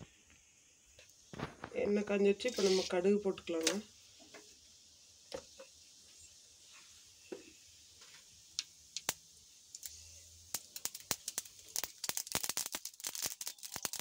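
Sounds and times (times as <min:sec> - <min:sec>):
faint sizzle: 0:00.0 - 0:14.0
mustard seeds popping in oil: 0:05.2 - 0:05.8, 0:07.2 - 0:14.0.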